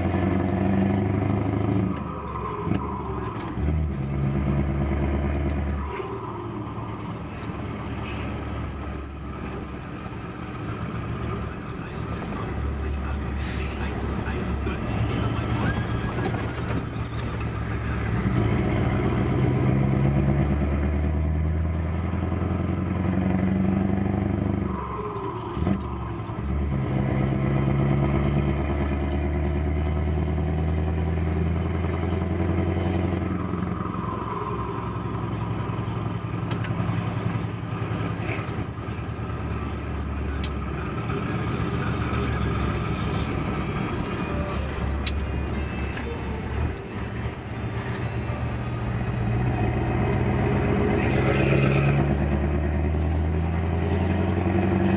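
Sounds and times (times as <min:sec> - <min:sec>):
truck diesel engine accelerating: 0:00.0 - 0:54.9.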